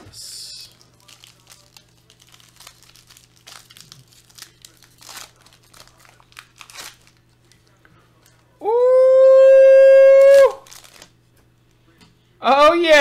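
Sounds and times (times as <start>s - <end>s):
foil wrapper crinkling and tearing: 0.6s - 7.8s, 10.2s - 11.2s.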